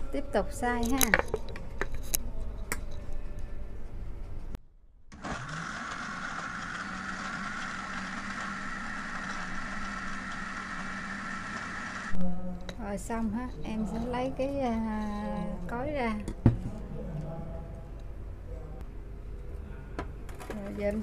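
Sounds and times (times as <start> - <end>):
blender crushing ice: 5.1 - 12.1.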